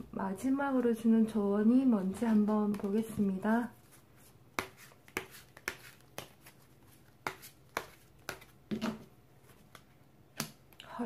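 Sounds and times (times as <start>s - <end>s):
cards shuffled by hand: 4.6s - 8.6s.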